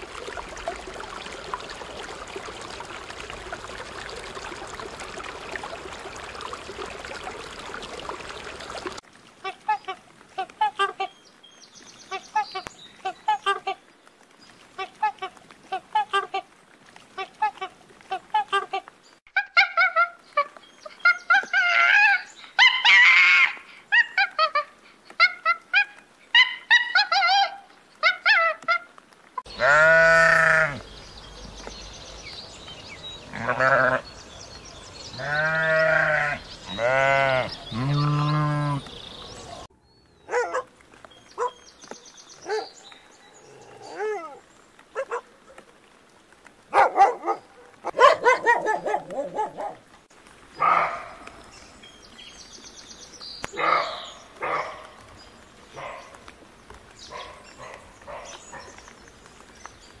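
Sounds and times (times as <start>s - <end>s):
sheep bleating: 29.5s - 30.8s, 33.3s - 34.0s, 35.2s - 38.8s
dog barking and yelping: 40.3s - 40.7s, 41.4s - 41.6s, 42.4s - 42.7s, 43.9s - 45.6s, 46.7s - 49.9s, 53.6s - 54.9s.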